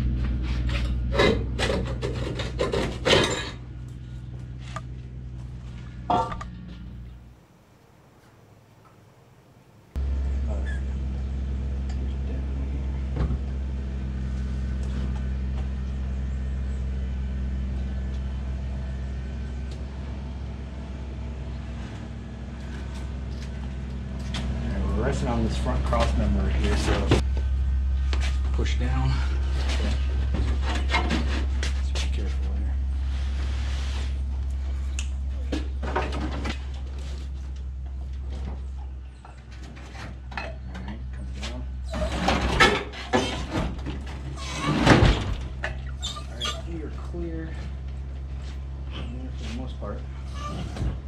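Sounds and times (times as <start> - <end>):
low machine hum: 0.0 - 51.0
metal knocks and clanks: 0.2 - 3.7, 41.9 - 45.9.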